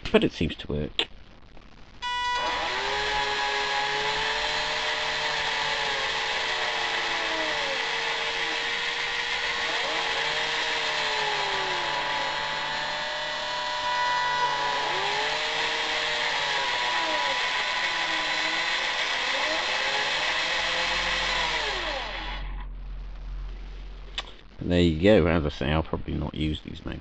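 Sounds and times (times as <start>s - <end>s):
electric drill motors whining: 2.0s - 22.7s.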